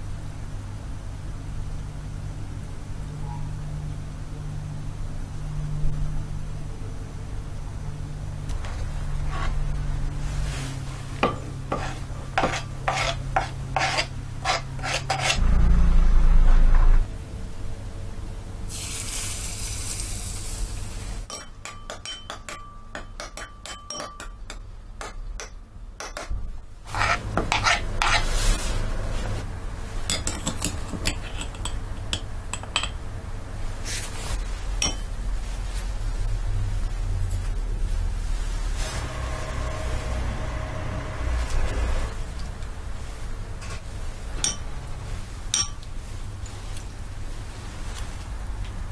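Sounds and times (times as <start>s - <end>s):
metal spoon scraping glass bowl: 11.7s - 15.4s, 21.3s - 24.6s, 26.9s - 28.3s
loud low rumble: 15.4s - 18.1s.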